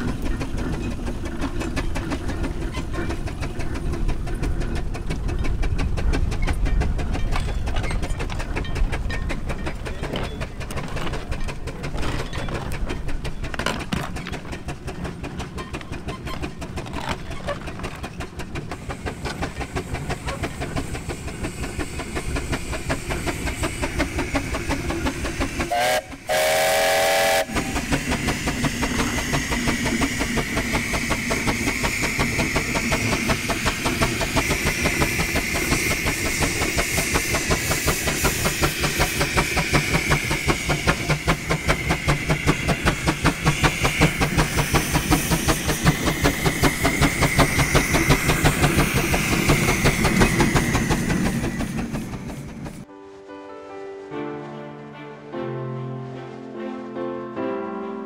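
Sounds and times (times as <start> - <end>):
mechanical clatter: 0.0 - 25.6
steam engine exhaust chuffing: 0.0 - 52.9
steam whistle blowing: 25.7 - 27.8.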